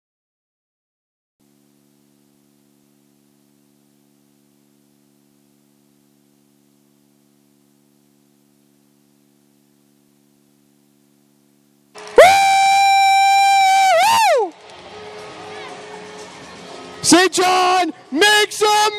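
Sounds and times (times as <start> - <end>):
low hiss: 1.4 - 12.0
faint steady hum: 1.4 - 15.3.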